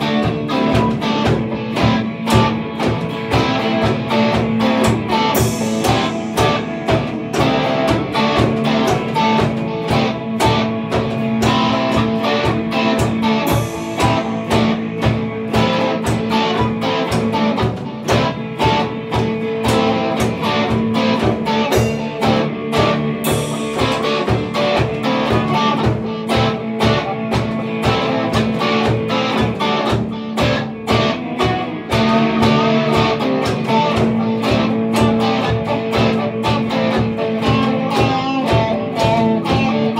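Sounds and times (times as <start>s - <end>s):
drum beat: 0.0s - 39.9s
electric guitars playing chords: 0.0s - 39.9s
cymbal crashes: 5.2s - 9.8s, 13.2s - 16.6s, 23.2s - 25.2s.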